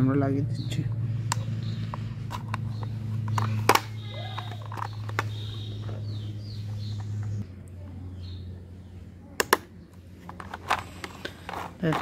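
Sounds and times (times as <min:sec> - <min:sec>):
plastic toy wheels clicking: 0:02.3 - 0:05.8, 0:10.3 - 0:12.0.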